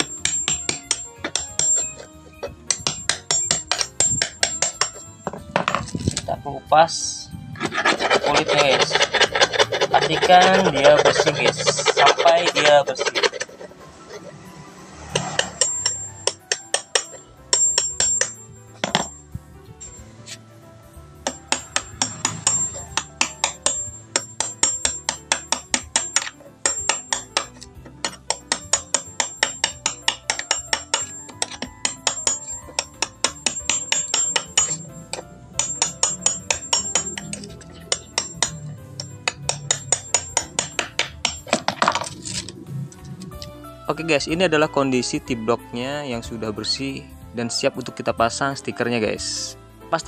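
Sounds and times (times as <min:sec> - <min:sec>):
screwdriver prying veneer: 0:07.6 - 0:14.3, 0:21.3 - 0:42.6.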